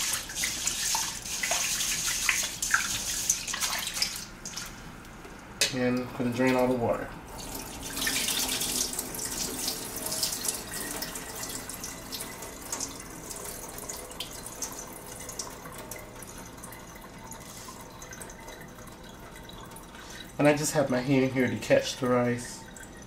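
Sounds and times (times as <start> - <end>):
water splashing into sink: 0.0 - 4.8, 7.4 - 20.2
water trickling and dripping: 0.0 - 6.7, 7.3 - 23.0.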